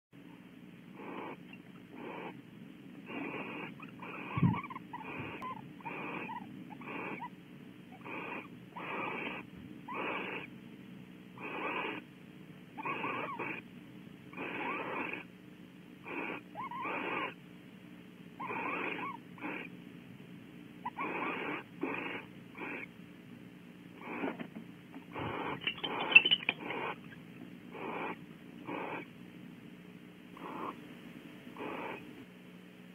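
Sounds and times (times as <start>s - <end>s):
owls chittering: 0.2s - 10.6s, 11.4s - 12.1s, 12.7s - 13.7s, 14.3s - 15.3s, 16.0s - 17.4s, 18.4s - 19.8s, 20.8s - 23.0s, 24.0s - 24.4s, 25.0s - 29.1s, 30.3s - 30.8s, 31.5s - 32.1s
owls hissing calls: 0.2s - 10.6s, 11.4s - 12.1s, 12.7s - 13.7s, 14.3s - 15.3s, 16.0s - 17.4s, 18.4s - 19.8s, 20.8s - 23.0s, 24.0s - 24.4s, 25.1s - 29.1s, 30.3s - 30.8s, 31.5s - 32.1s.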